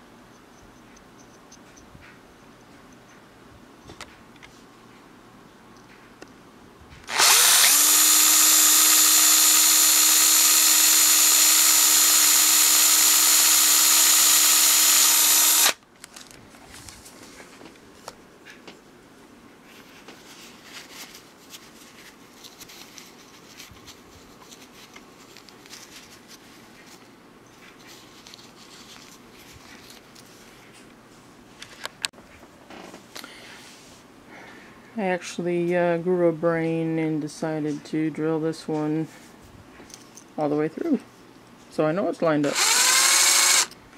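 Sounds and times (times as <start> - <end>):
cordless drill drilling metal: 7.1 - 15.8, 42.4 - 43.8.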